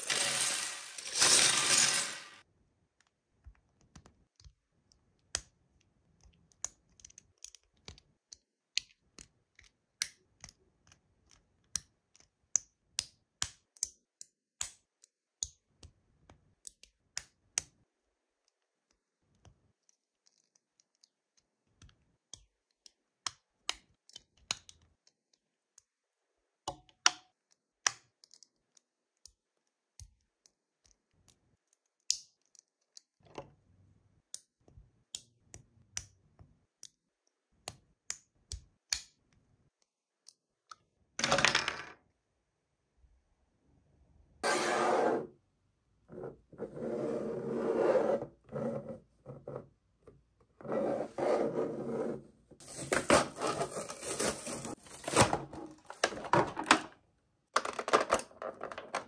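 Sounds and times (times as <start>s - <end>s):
plastic pieces clicking onto a plate: 57.5s - 59.0s.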